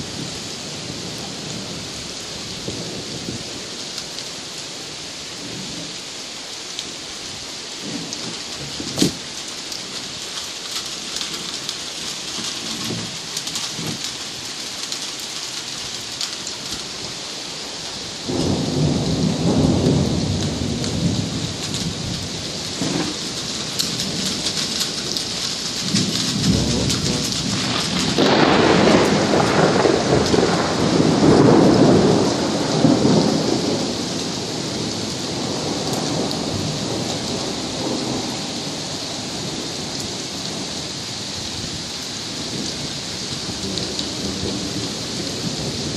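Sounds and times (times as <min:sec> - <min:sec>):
heavy rain: 0:00.0 - 0:45.9
thunder crack: 0:07.8 - 0:09.2, 0:10.7 - 0:14.2, 0:18.3 - 0:38.6
rumbling thunder: 0:07.8 - 0:17.2, 0:18.1 - 0:45.9.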